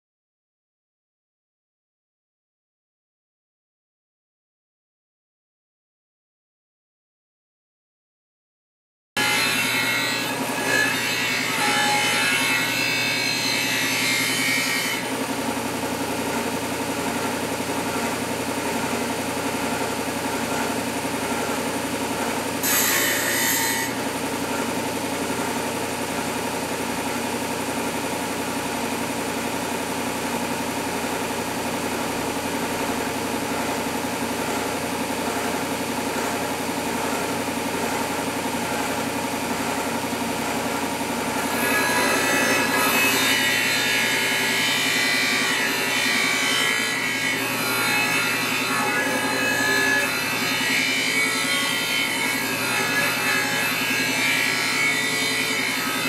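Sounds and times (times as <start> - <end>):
knife grinding on sander: 9.2 - 15.4, 17.0 - 25.4, 41.3 - 56.0
sander motor hum: 24.0 - 42.7.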